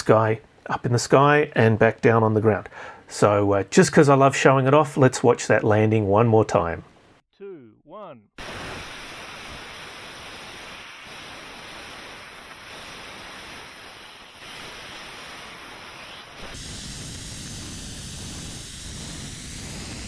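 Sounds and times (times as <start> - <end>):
rocket motor hissing rush: 8.4 - 20.0.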